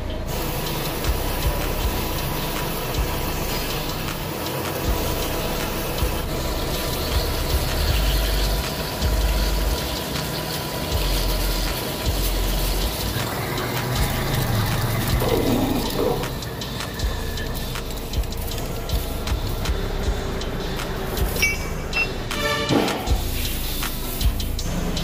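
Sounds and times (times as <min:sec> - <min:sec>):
coolant splashing and hissing: 0:00.0 - 0:25.0
metal lathe running: 0:00.0 - 0:25.0.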